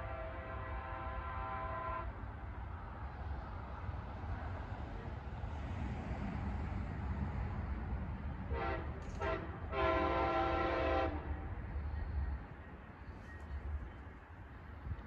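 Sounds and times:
locomotive horn blasts: 0.0s - 2.1s, 8.5s - 11.3s.

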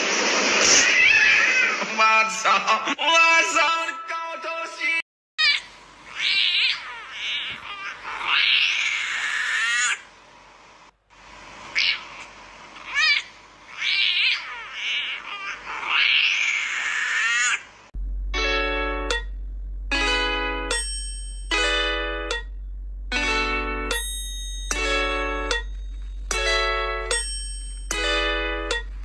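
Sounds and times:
puppy squeaky howl: 12.9s - 17.6s.

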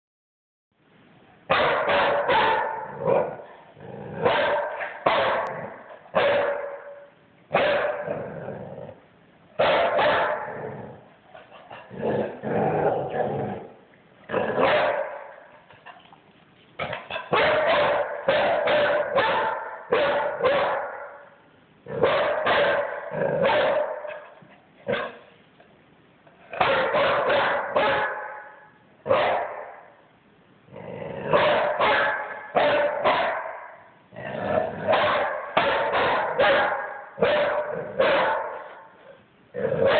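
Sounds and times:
puppy barking: 1.5s - 3.5s, 4.2s - 8.2s, 9.6s - 10.6s, 14.5s - 15.5s, 16.8s - 25.3s, 26.6s - 29.9s, 31.3s - 33.9s, 34.8s - 38.9s.

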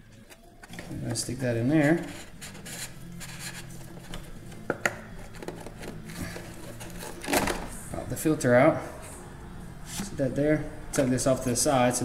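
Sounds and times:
steady low hum: 0.0s - 12.0s
light rubbing: 0.1s - 4.3s.

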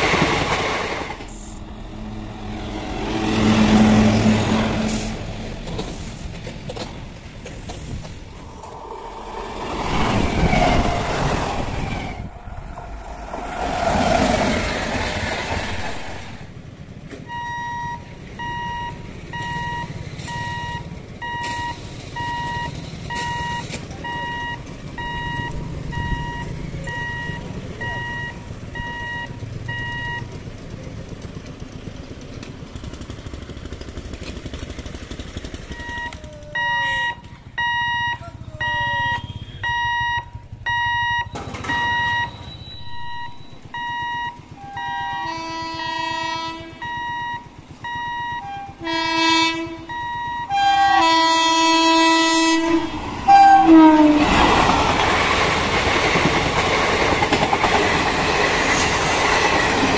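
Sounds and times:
electric train passing: 0.0s - 59.9s
motorcycles idling and traffic: 16.6s - 52.8s
level crossing warning buzzer: 35.8s - 42.4s, 43.2s - 52.6s.

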